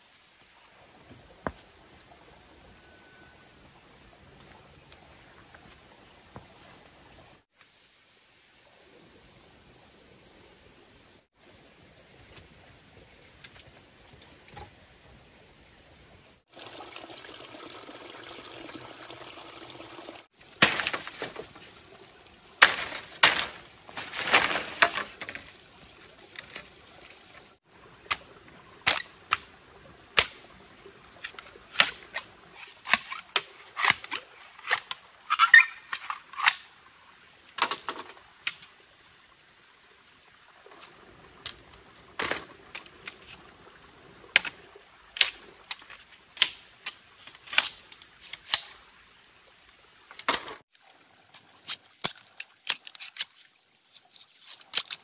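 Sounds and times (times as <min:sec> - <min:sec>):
high insect drone: 0:00.0 - 0:16.7
sharp knocks and cracks: 0:20.6 - 0:21.5, 0:22.6 - 0:25.5, 0:30.2 - 0:30.4.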